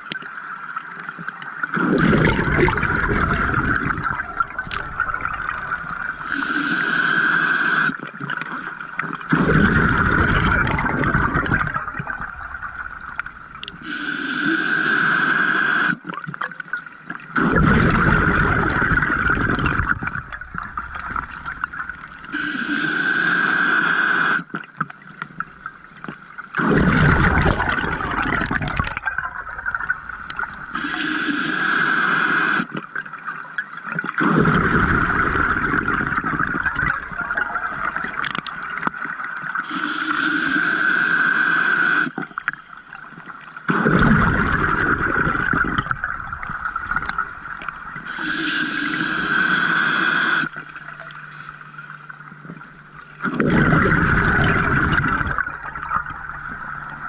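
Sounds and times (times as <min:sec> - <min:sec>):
bubbling exhaust: 0:01.8 - 0:07.9, 0:09.3 - 0:13.2, 0:17.4 - 0:24.5, 0:34.2 - 0:38.3, 0:53.2 - 0:57.0
regulator hissing inhale: 0:06.2 - 0:08.0, 0:13.8 - 0:16.0, 0:22.3 - 0:24.5, 0:30.7 - 0:32.7, 0:39.6 - 0:42.2, 0:48.0 - 0:50.6.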